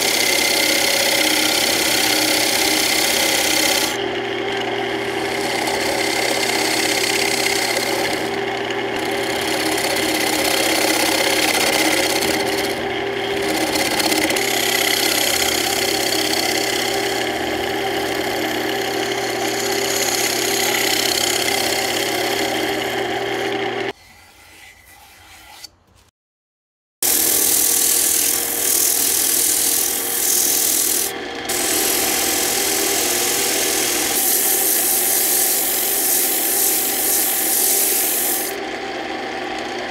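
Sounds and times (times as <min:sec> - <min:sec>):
wood lathe motor hum: 0:00.0 - 0:24.0, 0:27.0 - 0:39.9
chisel scraping spinning wood: 0:00.0 - 0:25.8, 0:27.0 - 0:39.9
sandpaper hissing on spinning wood: 0:27.0 - 0:38.6.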